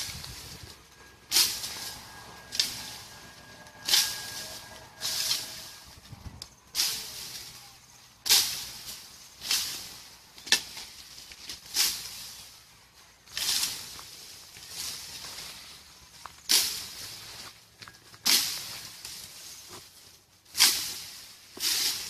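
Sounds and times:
leaves rustling: 0.0 - 22.0
blade hacking branches: 1.2 - 5.8, 18.2 - 19.6.

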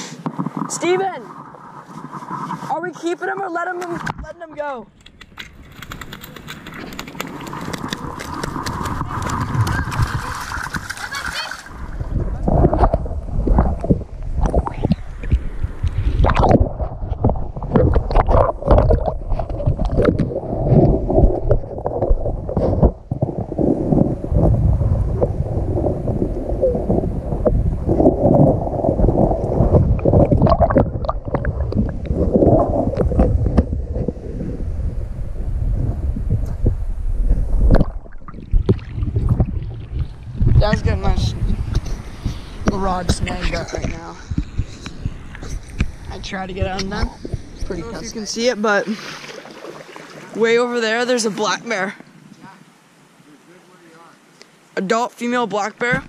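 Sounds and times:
muffled underwater river rush: 0.0 - 54.8
microphone handling rumble: 3.9 - 11.0, 11.7 - 48.6.

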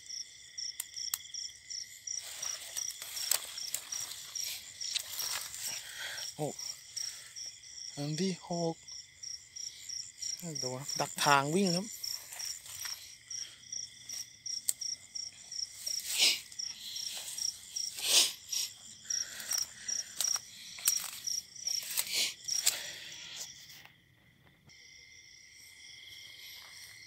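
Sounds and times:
high insect trill: 0.0 - 27.0
insects chirping: 0.0 - 27.0
footsteps through dry grass: 2.2 - 6.0, 12.1 - 13.2.

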